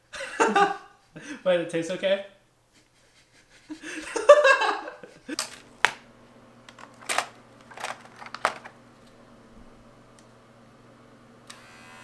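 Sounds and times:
faint steady hum: 0.0s - 12.0s
woman laughing: 0.1s - 1.0s, 2.9s - 5.6s
clicks and rattles of clipper kit: 6.7s - 8.8s.

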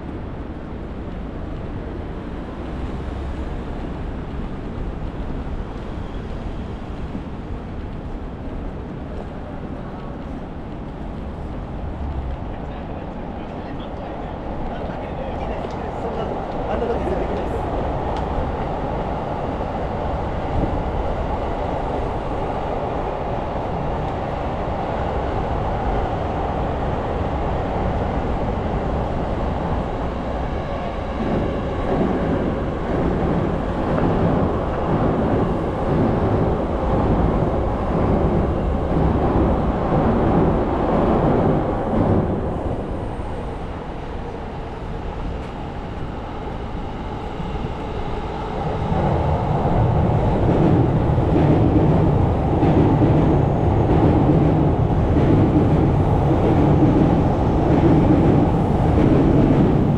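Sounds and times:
city traffic rumble: 0.0s - 59.9s
passing rumble with repeated beat: 26.4s - 43.5s, 48.6s - 59.9s.

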